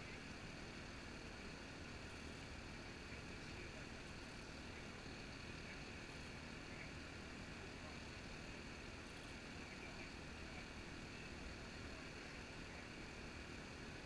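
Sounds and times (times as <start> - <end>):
even outdoor hiss: 0.0 - 14.0.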